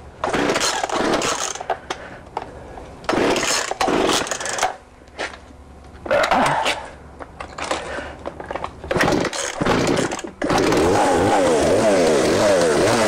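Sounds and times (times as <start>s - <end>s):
chainsaw starter cord yanks: 0.2s - 1.8s, 3.1s - 4.8s, 8.4s - 13.0s.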